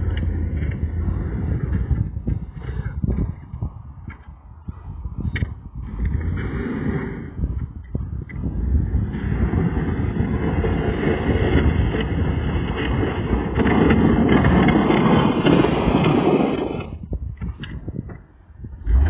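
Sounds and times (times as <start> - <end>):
snow plow scraping: 0.0 - 2.9, 5.9 - 7.6, 8.3 - 17.0
truck engine running: 0.0 - 15.7.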